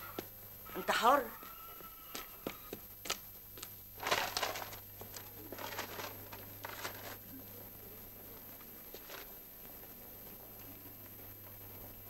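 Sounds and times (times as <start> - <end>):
pages turning: 4.0 - 7.2.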